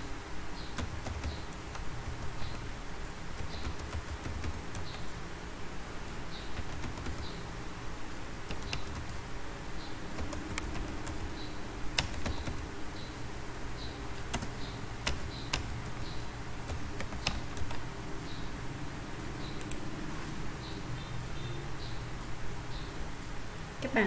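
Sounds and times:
low background hum: 0.0 - 24.0
keyboard keystroke clicks: 0.8 - 2.6, 3.4 - 5.1, 6.6 - 7.4, 8.5 - 9.2, 10.2 - 11.3, 12.0 - 12.7, 14.2 - 16.0, 16.6 - 17.8.

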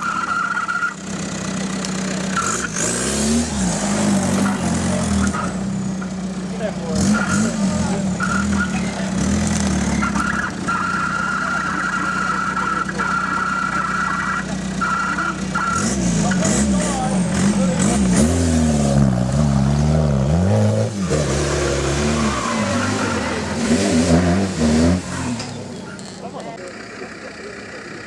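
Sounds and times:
buggy engine idling and revving: 0.0 - 28.0.

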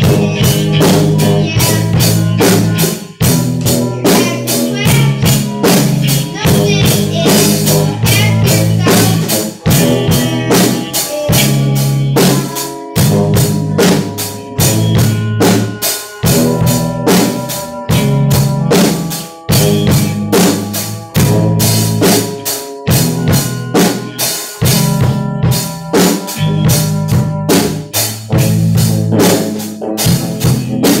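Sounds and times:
drum kit beat: 0.0 - 31.0
electric guitar chords: 0.0 - 31.0
keyboard: 0.0 - 31.0.

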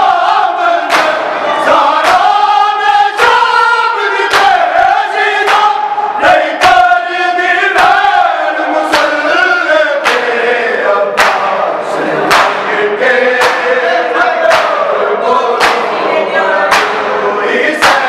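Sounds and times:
men chanting in chorus: 0.0 - 18.0
hands slapping bare chests: 0.9 - 1.2, 4.3 - 4.6, 10.0 - 10.3, 11.2 - 11.5, 12.3 - 12.6, 13.4 - 13.7, 14.5 - 14.8, 15.6 - 15.8, 16.7 - 17.0.

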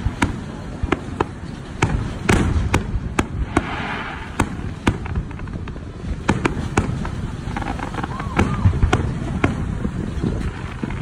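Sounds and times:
low rumble of echoing reports: 0.0 - 7.5
firework shells bursting: 0.0 - 11.0.

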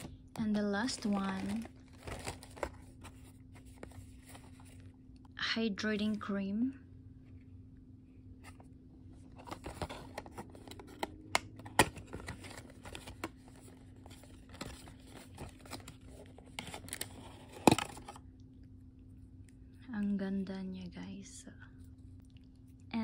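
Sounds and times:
cardboard rustling and scraping: 1.0 - 4.9, 8.4 - 18.2.

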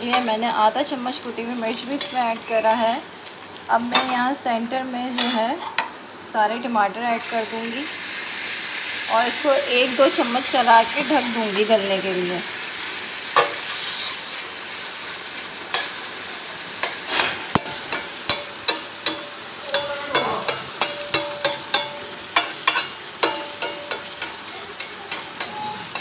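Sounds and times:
meat sizzling in a pan: 0.0 - 26.0
metal spoon knocking pan: 17.5 - 26.0.

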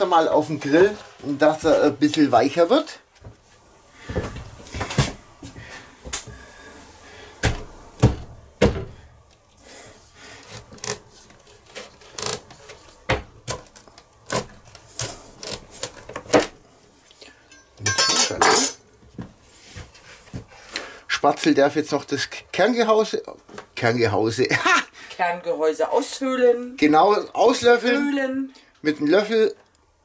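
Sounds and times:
pumpkin cracking apart: 10.4 - 16.6.

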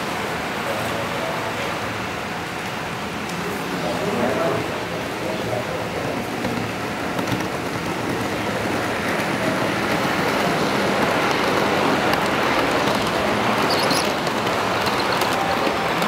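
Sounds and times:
model train wheels rolling on track: 3.2 - 16.0.

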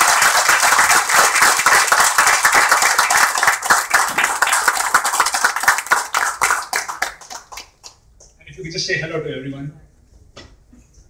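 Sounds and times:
people applauding: 0.0 - 8.1.

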